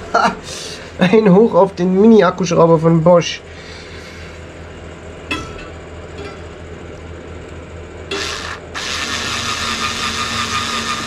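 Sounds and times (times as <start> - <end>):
cordless drill whining: 8.1 - 11.0.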